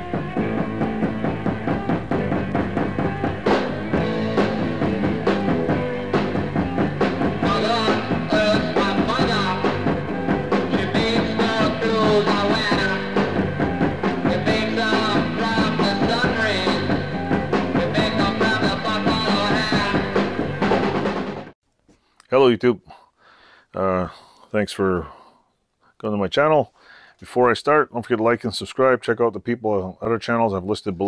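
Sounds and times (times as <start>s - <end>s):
rock music with drum beat: 0.0s - 21.6s.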